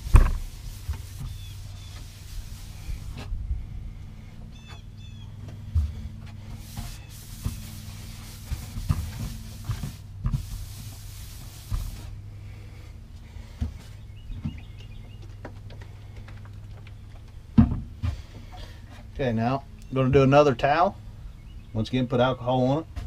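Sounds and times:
paper towel rubbing: 0.0 - 3.3, 6.4 - 12.2
steady low hum: 0.0 - 23.0.

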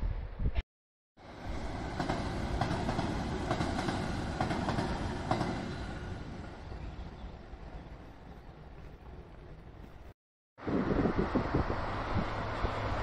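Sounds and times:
electric train passing: 1.2 - 13.0
train wheels clicking over rail joints: 1.7 - 6.3.

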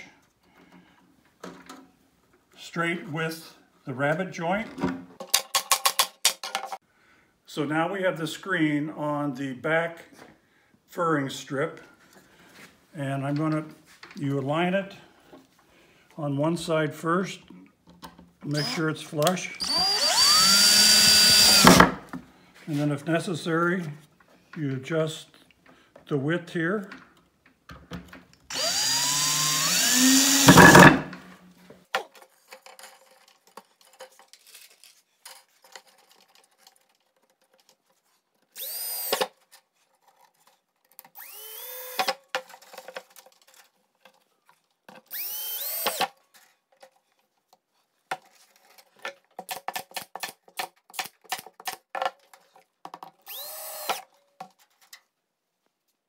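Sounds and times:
cordless drill driving screws: 18.5 - 22.0, 28.5 - 31.1, 38.5 - 39.4, 41.0 - 42.3, 45.0 - 46.2, 53.2 - 54.1.

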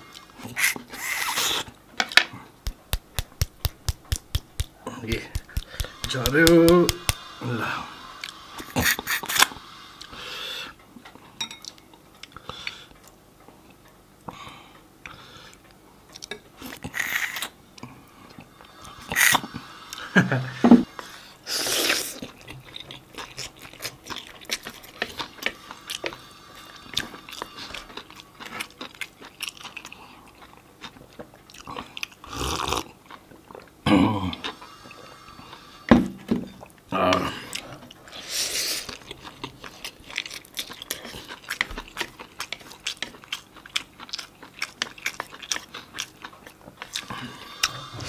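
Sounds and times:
chewing and wet mouth smacking: 2.7 - 7.2, 22.1 - 26.2, 26.9 - 33.8, 38.8 - 47.8
crunching while eating: 2.7 - 7.2, 21.0 - 35.7, 38.6 - 48.0
slurping soup: 46.9 - 48.0.

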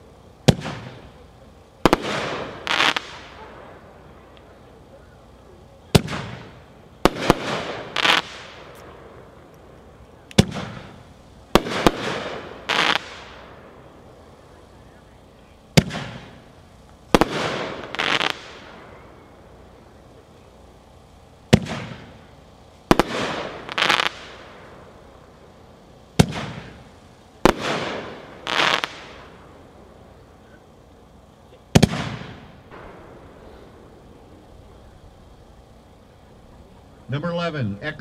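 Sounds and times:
crackling firework report: 0.0 - 38.0
firework launch thump: 21.5 - 22.1
firework burst boom: 21.5 - 22.2, 31.7 - 35.0.

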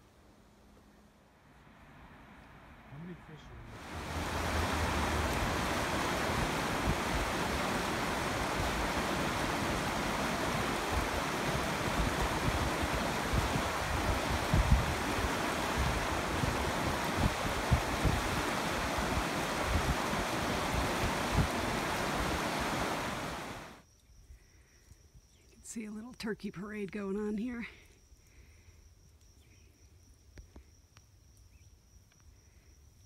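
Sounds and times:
river rushing over stones: 3.7 - 23.8.

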